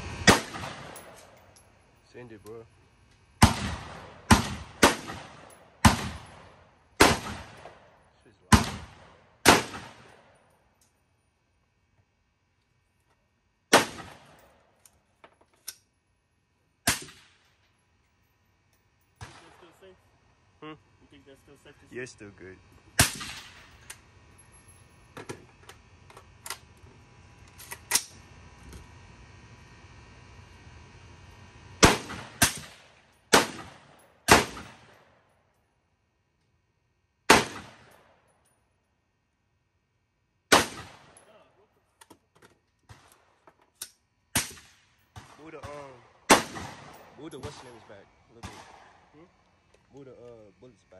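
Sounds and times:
rifle shots: 0.2 - 1.4, 3.4 - 10.4, 13.7 - 14.5, 16.8 - 17.5, 19.2 - 19.8, 23.0 - 23.8, 31.8 - 35.0, 37.3 - 38.1, 40.5 - 41.2, 44.3 - 49.1.

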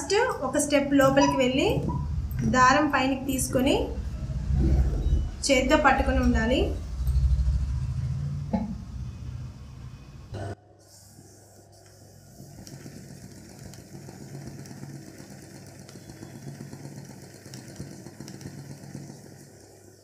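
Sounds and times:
sewing machine stitching: 12.6 - 19.7.

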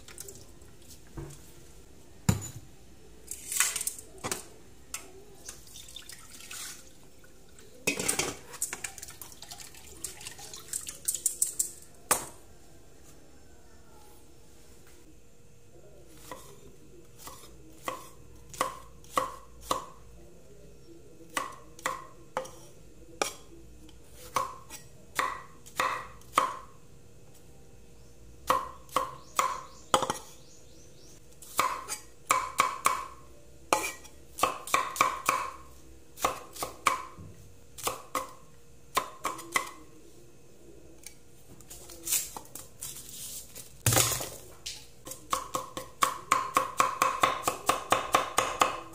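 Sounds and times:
cleaver chopping on wooden board: 45.3 - 48.8.

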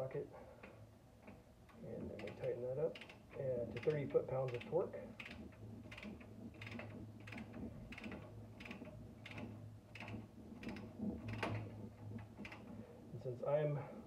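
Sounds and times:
low steady hum: 0.0 - 14.0
ratcheting torque wrench clicking: 2.2 - 12.8.

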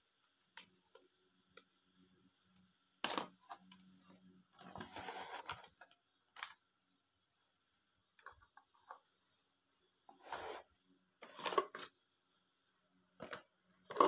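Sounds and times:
rustling scrape in cardboard box: 4.7 - 5.6, 10.2 - 10.7.

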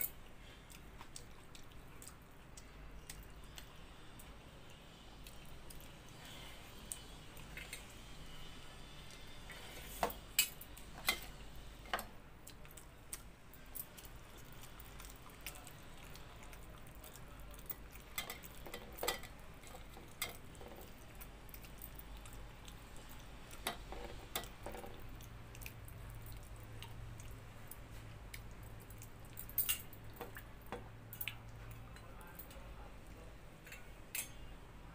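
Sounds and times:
soft chewing: 0.0 - 34.5
faint low hum: 0.0 - 34.9.

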